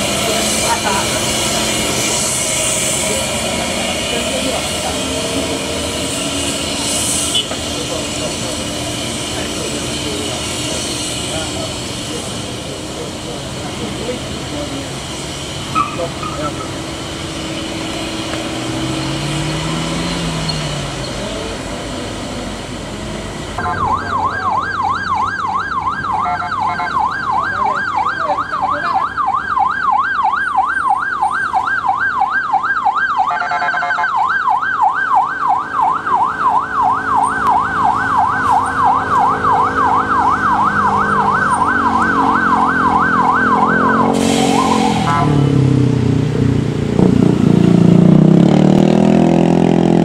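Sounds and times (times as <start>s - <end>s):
traffic engines: 0.0s - 50.0s
harsh horn blast: 7.0s - 8.0s, 23.6s - 24.3s, 26.2s - 27.0s, 33.3s - 34.2s, 39.2s - 45.7s
siren yelping: 23.6s - 45.6s.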